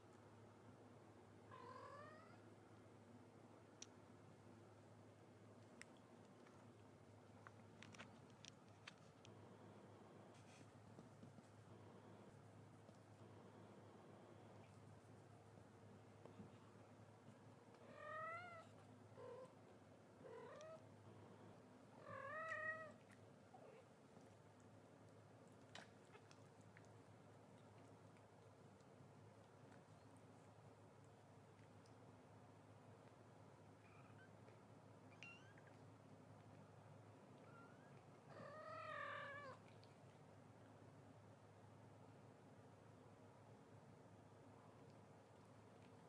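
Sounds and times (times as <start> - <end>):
faint squeak: 33.8 - 34.4, 35.1 - 35.7, 37.4 - 39.6.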